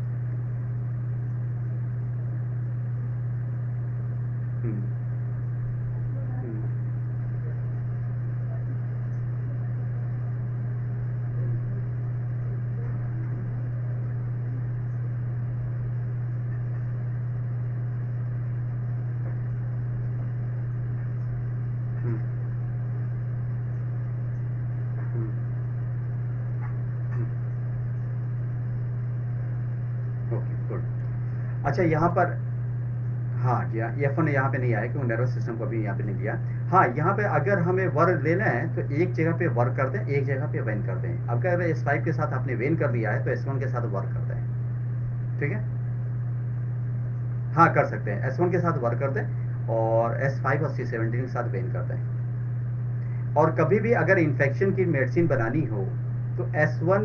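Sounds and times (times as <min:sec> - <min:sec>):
steady low hum: 0:00.0 - 0:57.0
distant voice: 0:05.9 - 0:15.8.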